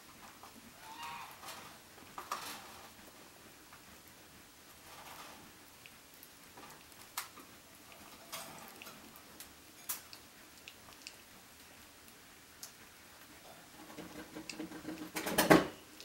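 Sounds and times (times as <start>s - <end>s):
faint clicks and knocks: 13.4s - 15.6s.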